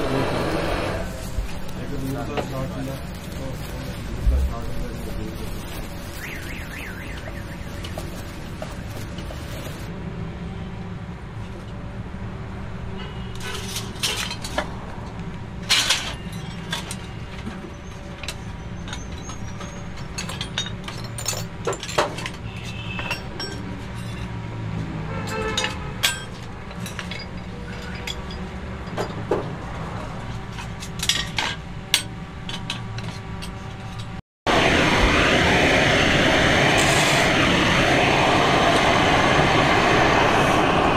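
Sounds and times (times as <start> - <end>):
blowtorch hissing: 0.0 - 9.9, 34.5 - 40.9
metal parts clinking on brake plate: 13.4 - 14.7, 15.7 - 17.2, 18.2 - 24.3, 25.3 - 29.3, 30.6 - 34.2
low hum: 34.5 - 40.9.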